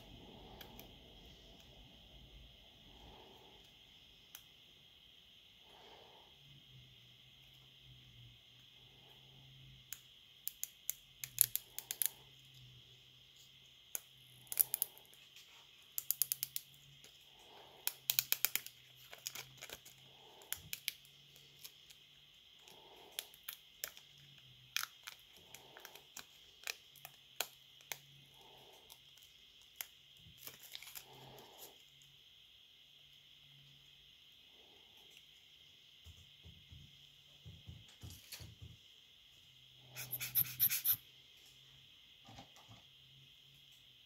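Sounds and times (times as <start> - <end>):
soft breathing: 0.0 - 4.2, 5.3 - 7.0, 30.4 - 32.1
faint steady hum: 0.0 - 44.0.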